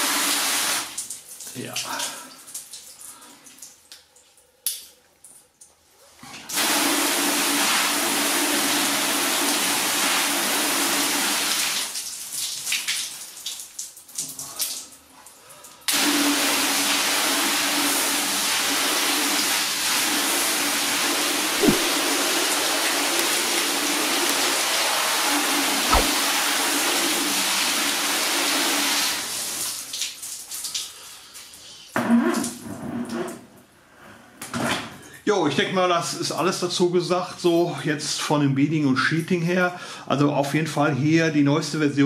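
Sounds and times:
water dripping and trickling: 0.9s - 5.9s, 11.8s - 15.9s, 28.6s - 31.8s
short knock: 21.6s - 22.0s, 25.9s - 26.2s.

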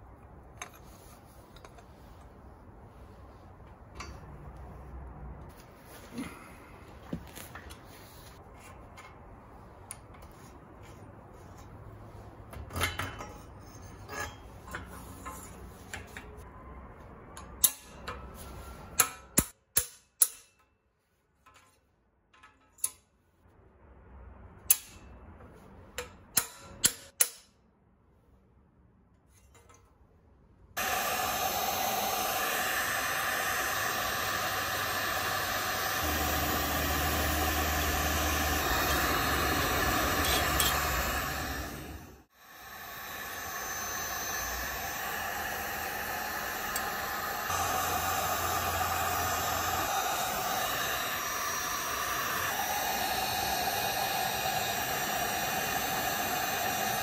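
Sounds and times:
loud steady noise: 30.8s - 57.0s.

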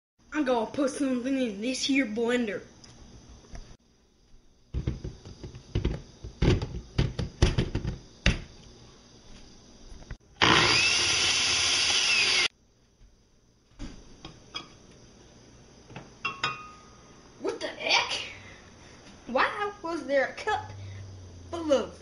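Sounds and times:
knocks and clunks of handling: 4.8s - 8.5s
blender motor running: 10.4s - 12.5s.

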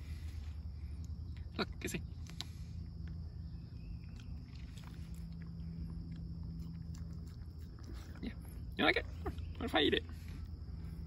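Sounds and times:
low rumble with faint hum: 0.0s - 11.0s.

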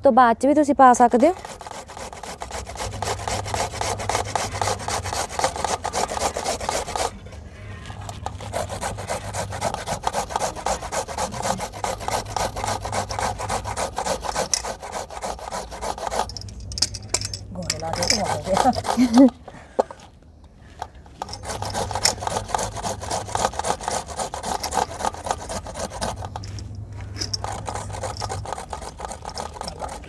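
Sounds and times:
carrots rasping on a grater: 1.0s - 7.1s, 8.1s - 16.3s, 17.8s - 19.3s, 21.2s - 26.4s, 27.3s - 30.0s.

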